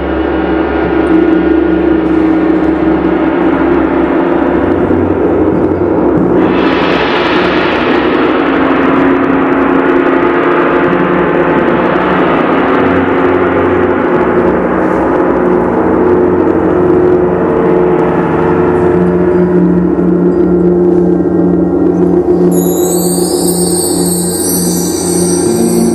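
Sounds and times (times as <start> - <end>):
gongs rolling: 22.5 - 25.9
gong struck: 22.6 - 25.9.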